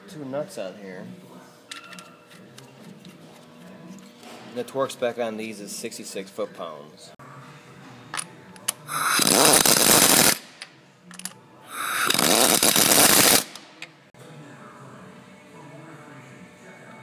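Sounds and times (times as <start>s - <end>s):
power wrench running nuts: 8.9s - 10.4s, 11.7s - 13.6s.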